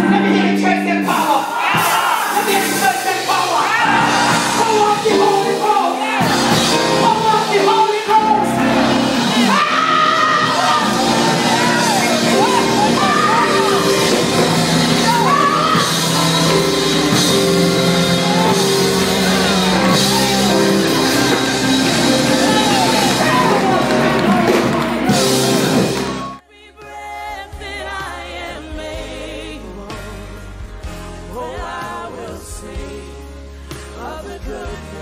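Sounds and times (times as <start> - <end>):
church music with held chords: 0.0 - 26.4.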